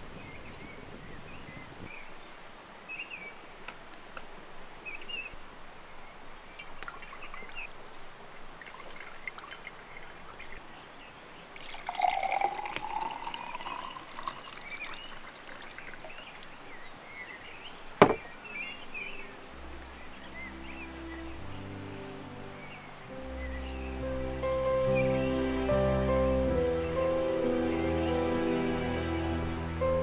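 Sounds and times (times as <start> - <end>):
faint bird chirps: 4.8 - 24.1
juice pouring into glass: 6.6 - 10.7, 11.4 - 16.7
sharp knock: 18.0 - 18.2.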